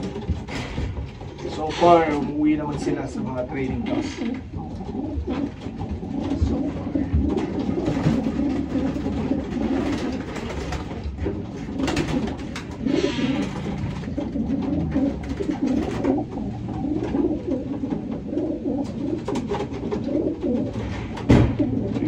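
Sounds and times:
pigeons cooing: 0.0 - 22.0
sharp thump: 21.2 - 21.7.

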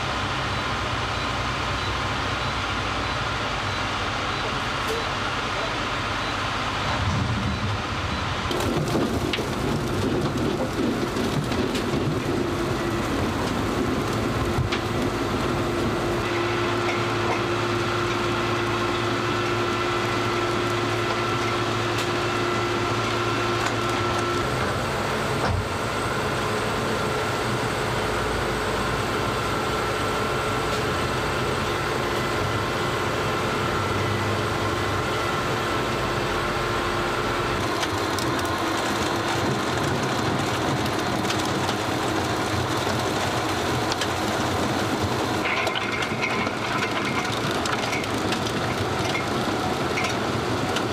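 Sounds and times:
steady machinery hum: 3.6 - 9.8
beets tumbling and clattering: 45.4 - 50.9.

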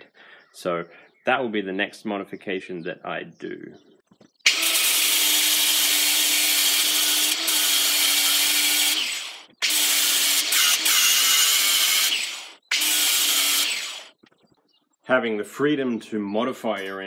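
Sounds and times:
angle grinder grinding steel: 4.5 - 14.2.

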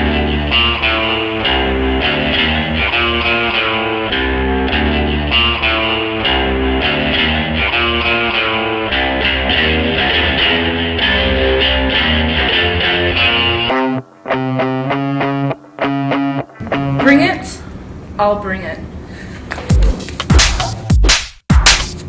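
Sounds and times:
guitar background music: 0.0 - 17.5.

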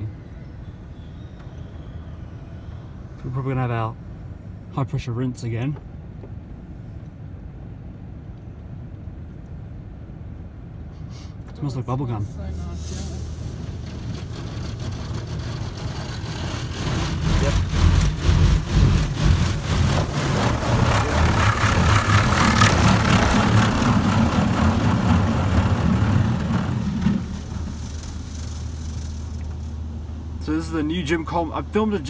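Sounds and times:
steady low hum: 0.0 - 32.0
water jets spraying on car: 12.6 - 32.0.

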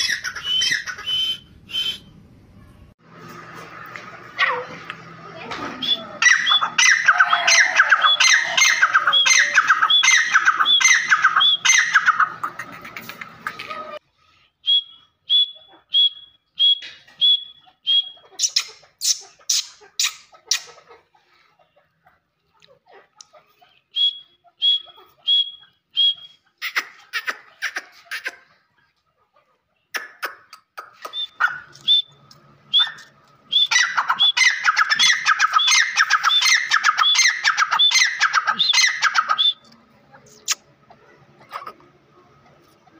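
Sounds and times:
francolin whistled call: 0.4 - 2.1, 31.1 - 34.5
francolin calling: 5.8 - 12.4, 31.1 - 39.7.

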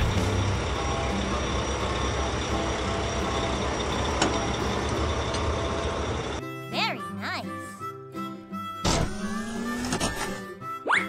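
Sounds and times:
truck engine running: 0.0 - 6.4.

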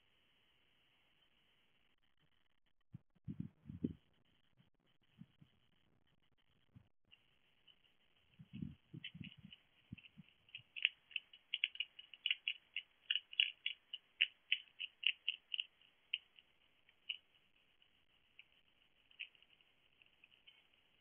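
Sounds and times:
hedgehog crunching dry food: 7.2 - 21.0.

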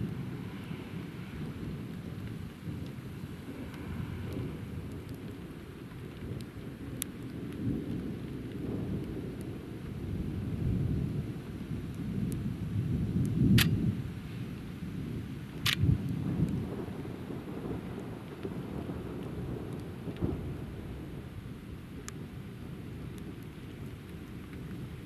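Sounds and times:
thunder rumbling: 0.0 - 25.0.

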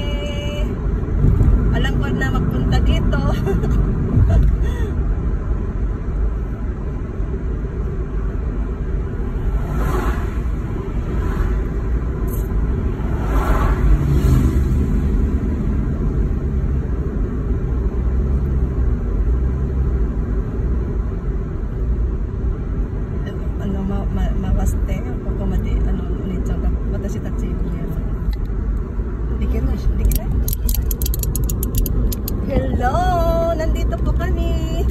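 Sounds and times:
road and engine rumble in car: 0.0 - 34.9
vehicles swishing past: 8.8 - 16.1.

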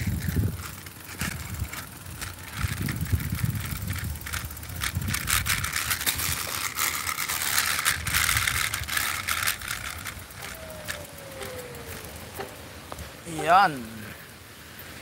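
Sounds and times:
wind buffeting microphone: 0.0 - 6.5, 7.7 - 14.3
bicycle frame rattling: 0.0 - 14.3
tyre hiss: 10.2 - 15.0.

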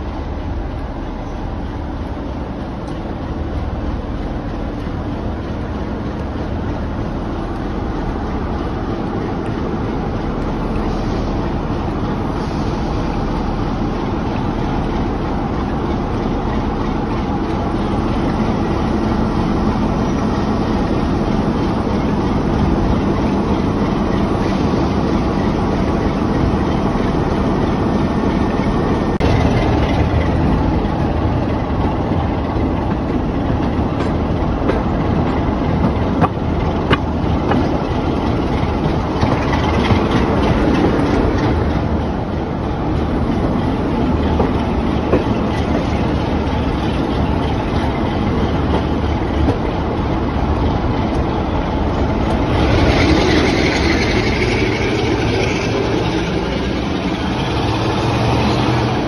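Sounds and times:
diesel locomotive engine running: 0.0 - 59.0
wheels clicking over rails: 13.8 - 59.0.

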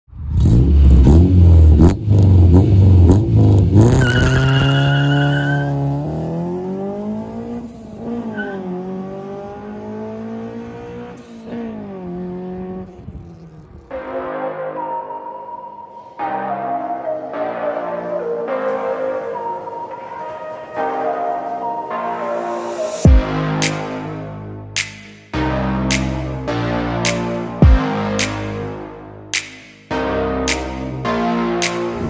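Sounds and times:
car engine revving: 0.1 - 14.0
car accelerating through gears: 0.3 - 13.9
tyre squeal: 3.9 - 5.8, 8.2 - 8.7.

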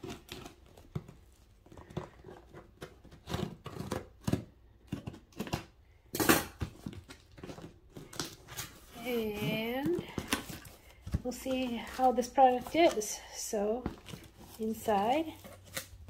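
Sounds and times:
scissors cutting cardboard: 0.0 - 5.8.

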